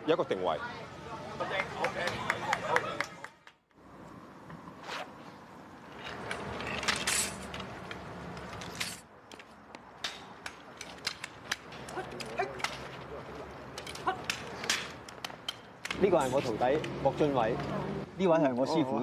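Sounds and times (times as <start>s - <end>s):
sword swishing: 4.8s - 5.2s.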